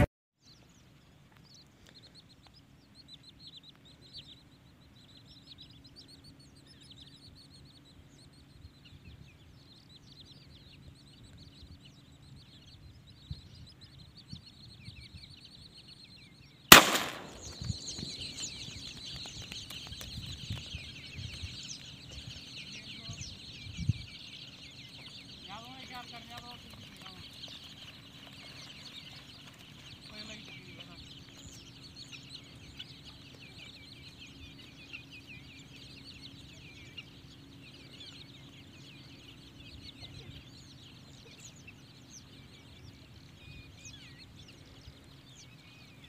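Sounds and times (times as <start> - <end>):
flock of birds calling: 0.0 - 46.0
shotgun shot: 16.7 - 18.0.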